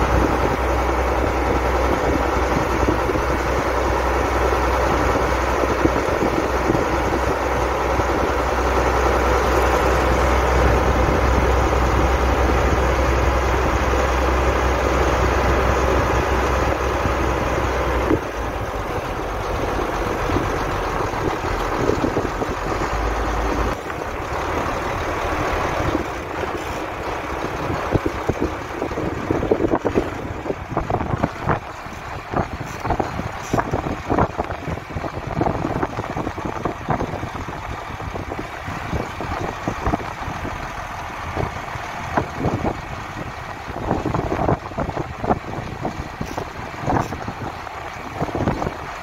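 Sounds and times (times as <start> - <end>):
tractor engines under load: 0.0 - 49.0.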